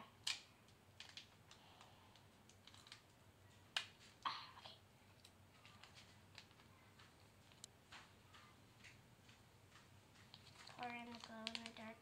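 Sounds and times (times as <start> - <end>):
plastic packet snapping open: 0.2 - 1.6, 2.2 - 4.0, 10.3 - 12.0
plastic packet crinkling: 0.2 - 4.2, 5.1 - 7.7, 10.2 - 12.0.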